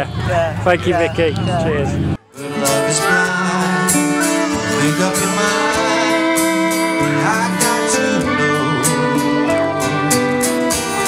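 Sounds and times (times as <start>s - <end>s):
acoustic guitar: 2.2s - 11.0s
electric guitar: 2.2s - 11.0s
man singing into a microphone: 2.3s - 10.6s.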